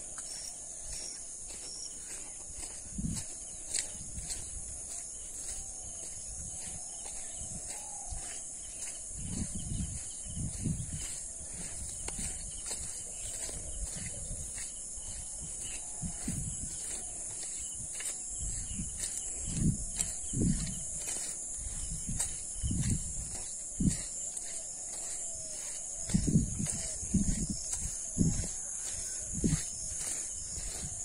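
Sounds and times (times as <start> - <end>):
footsteps on muddy dirt road: 0.0 - 31.0
high-pitched insect chorus: 0.0 - 31.0.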